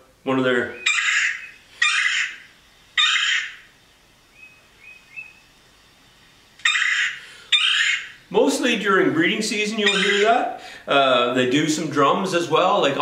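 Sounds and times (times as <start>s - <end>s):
woodpecker calls through speaker: 0.6s - 3.7s, 6.6s - 8.2s, 9.7s - 10.6s.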